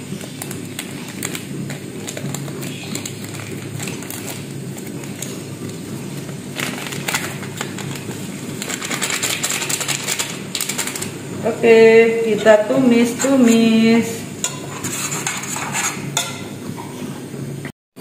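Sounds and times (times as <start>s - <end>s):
plastic sachet crinkling: 0.0s - 11.2s.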